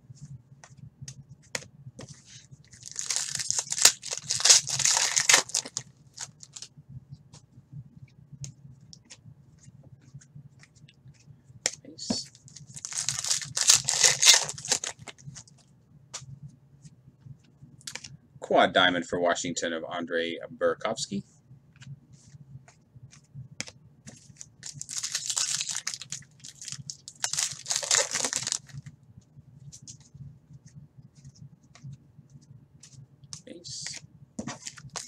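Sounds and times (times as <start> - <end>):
foil wrapper tearing and crinkling: 2.7 - 6.6, 12.7 - 15.1, 24.6 - 28.7.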